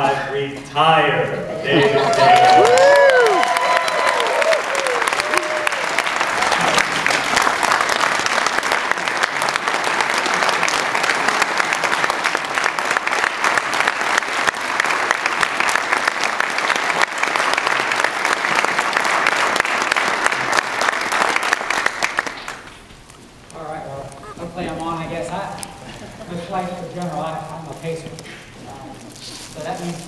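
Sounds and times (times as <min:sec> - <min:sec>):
crowd applause: 0:01.6 - 0:22.8.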